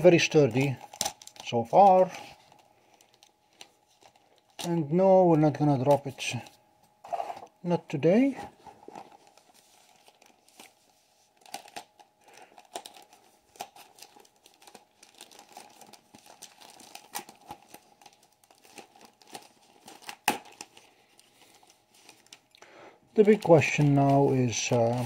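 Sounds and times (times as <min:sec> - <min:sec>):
plastic bag crinkling: 0:08.1 - 0:25.0.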